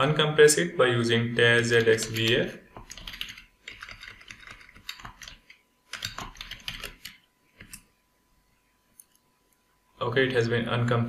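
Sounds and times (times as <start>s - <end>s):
typing on computer keyboard: 1.8s - 7.8s.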